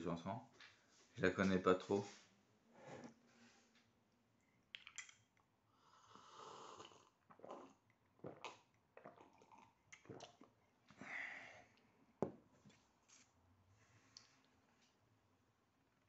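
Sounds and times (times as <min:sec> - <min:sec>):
slurping sips of coffee: 0:05.8 - 0:10.4.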